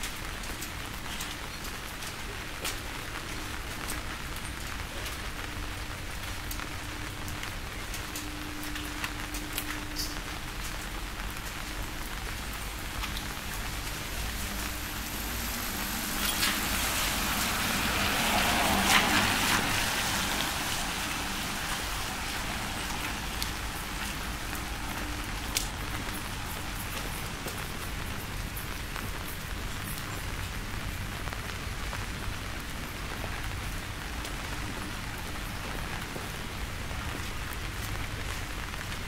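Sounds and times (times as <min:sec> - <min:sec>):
rain falling: 0:00.0 - 0:39.0
car tyres hissing on wet road: 0:11.5 - 0:28.5.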